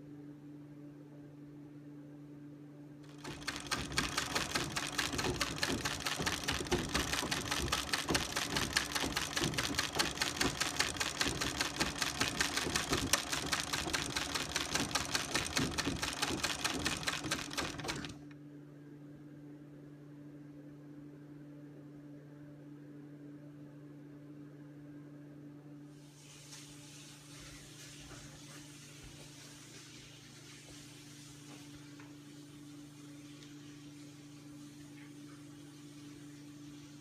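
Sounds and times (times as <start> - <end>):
treadle sewing machine stitching: 3.1 - 18.4.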